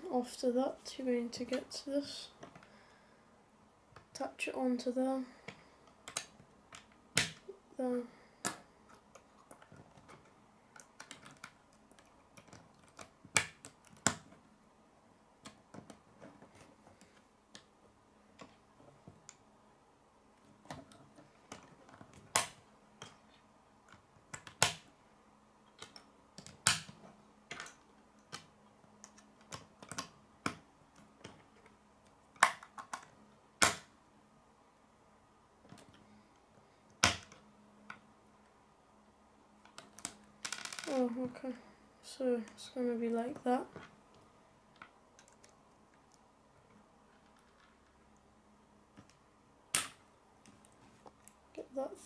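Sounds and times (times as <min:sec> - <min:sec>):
plastic pieces clicking together: 0:08.4 - 0:14.4, 0:25.7 - 0:31.4.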